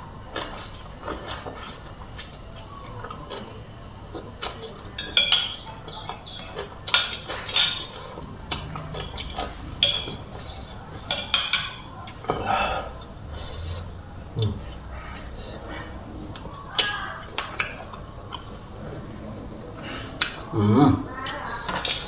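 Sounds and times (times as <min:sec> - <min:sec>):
slurping and chewing: 0:00.3 - 0:04.9, 0:05.8 - 0:11.0
cutlery clinking on a plate: 0:04.4 - 0:12.4.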